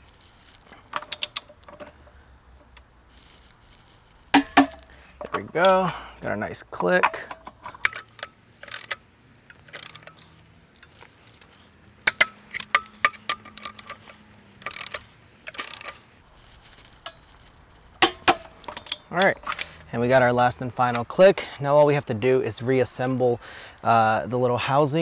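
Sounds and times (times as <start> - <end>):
torque wrench ratcheting: 4.4 - 4.9, 7.7 - 16.2, 18.0 - 19.0
torque wrench sharp click: 4.4 - 4.9, 7.8 - 9.0, 9.6 - 10.9, 12.0 - 16.1, 18.0 - 19.7.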